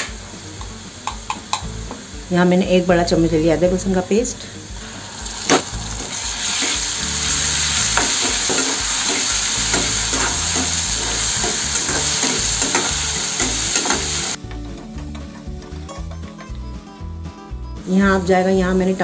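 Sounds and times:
paste sizzling in hot oil: 4.5 - 14.5.

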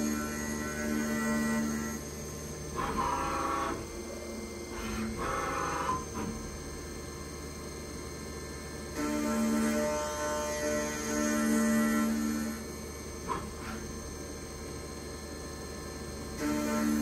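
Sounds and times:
milling cutter whining: 2.7 - 6.7, 9.0 - 14.4.

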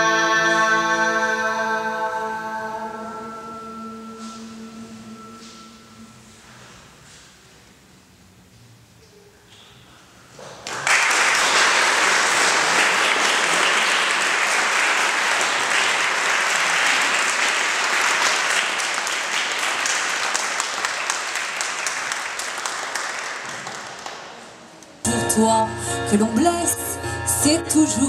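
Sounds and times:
audience applauding: 10.6 - 24.8.

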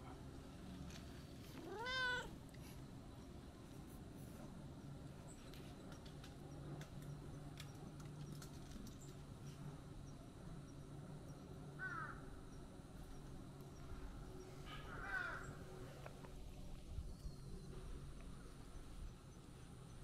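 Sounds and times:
cat meowing: 1.6 - 2.3.

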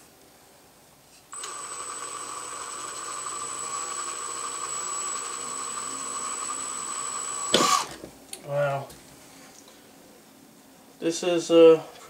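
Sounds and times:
cordless drill drilling metal: 1.4 - 8.0.

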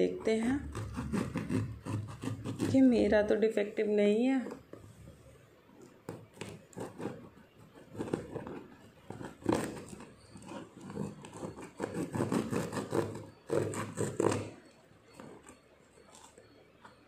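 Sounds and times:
knife cutting packing tape: 6.2 - 14.5.

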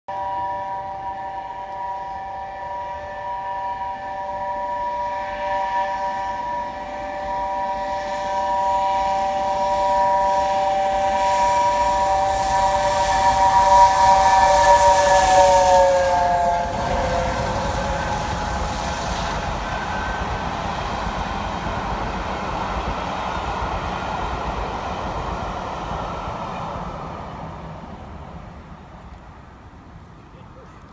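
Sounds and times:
steam locomotive chime whistle: 0.1 - 27.8
train running on rails: 0.1 - 30.9.

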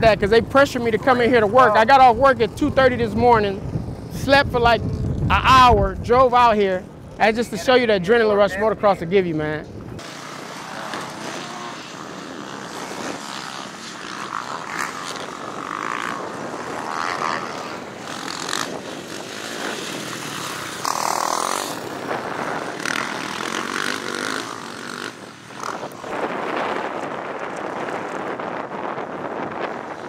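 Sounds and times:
dirt bike engines revving: 0.0 - 30.0.

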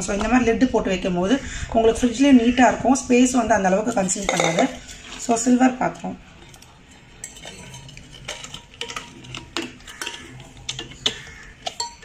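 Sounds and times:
steel bowl knocking and clinking: 3.9 - 5.0, 6.4 - 12.0.

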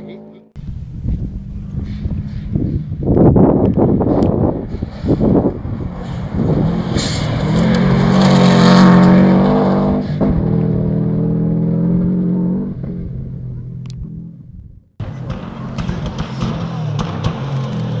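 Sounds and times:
rally car engine at high revs: 1.5 - 14.3, 15.0 - 18.0.

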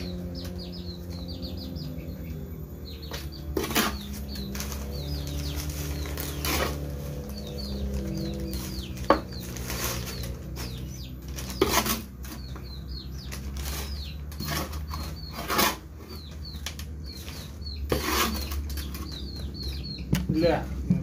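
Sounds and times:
small birds chirping: 0.0 - 21.0
rustling scraping noises: 3.1 - 19.9.

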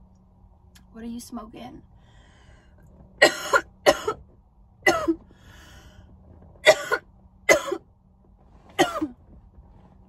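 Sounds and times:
woman coughing: 3.2 - 4.2, 4.9 - 5.2, 6.6 - 7.8, 8.8 - 9.2.

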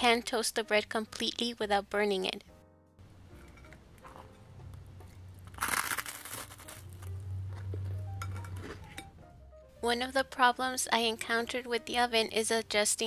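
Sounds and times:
bread crust crunching: 5.3 - 8.8
small crackles: 5.4 - 7.2.

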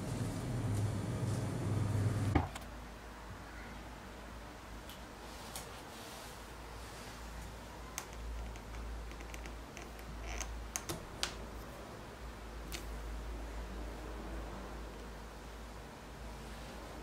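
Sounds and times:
faint low hum: 0.0 - 5.1.

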